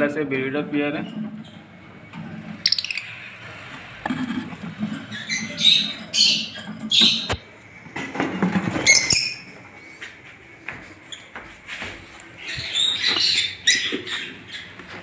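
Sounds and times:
lovebirds high-pitched calls: 2.6 - 3.2, 5.0 - 7.4, 8.8 - 9.5, 12.4 - 14.9.

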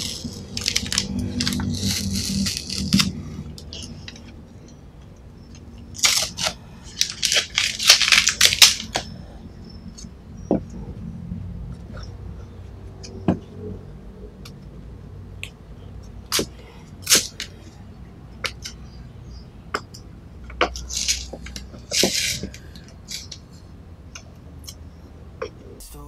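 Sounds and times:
masking tape peeling and crinkling: 0.0 - 4.3, 5.5 - 9.2, 16.3 - 17.6, 20.6 - 23.4.

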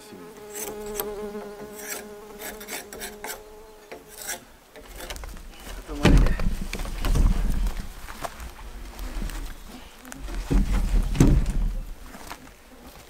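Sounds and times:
flying insect buzzing: 0.0 - 4.5
loud heavy thud: 5.9 - 7.7, 10.5 - 11.9.

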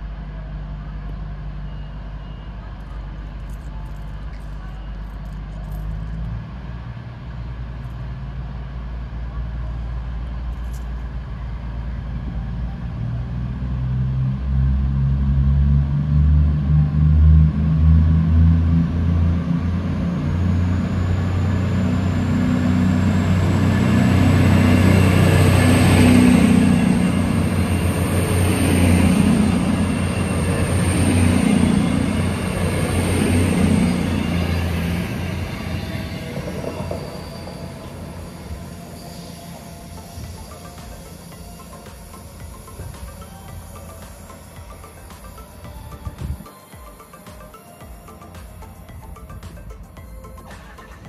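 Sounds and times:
diesel train engines droning: 0.0 - 51.0
thin high whine: 17.8 - 51.0.

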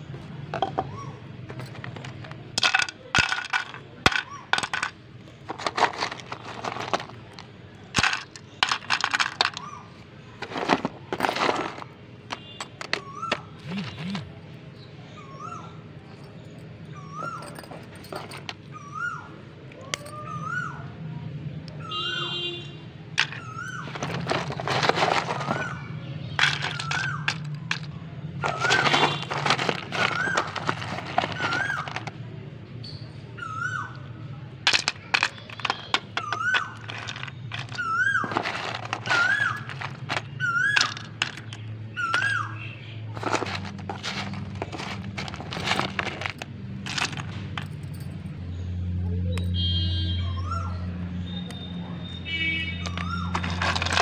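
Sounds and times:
clay chunks knocking together: 1.5 - 9.7, 23.2 - 25.8, 26.4 - 32.2, 34.7 - 42.4, 43.2 - 47.7, 52.9 - 54.0.

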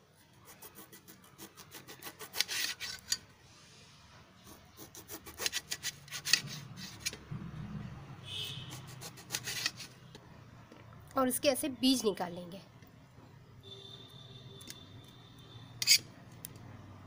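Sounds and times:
knife sawing through lemons: 0.4 - 3.1, 4.4 - 7.1, 8.7 - 9.9.

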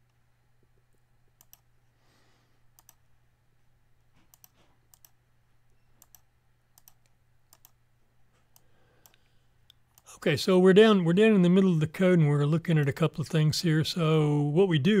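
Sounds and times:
low steady hum: 0.0 - 15.0
computer mouse clicks: 1.4 - 1.7, 2.8 - 3.0, 4.2 - 5.2, 6.0 - 7.8, 8.4 - 10.1.

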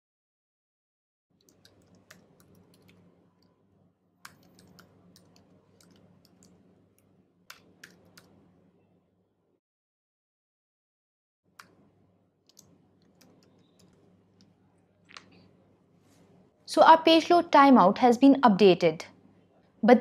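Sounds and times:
keyboard typing clicks: 1.4 - 3.5, 4.2 - 8.5, 12.4 - 14.5.

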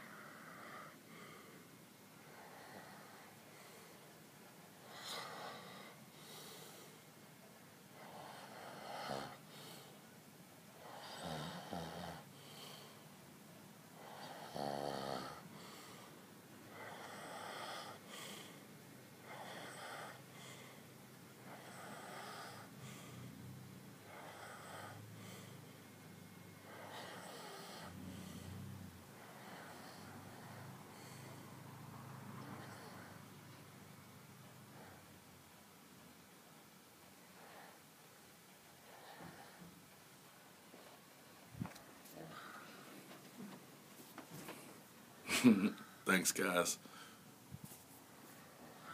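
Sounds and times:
person snoring: 14.0 - 15.5.

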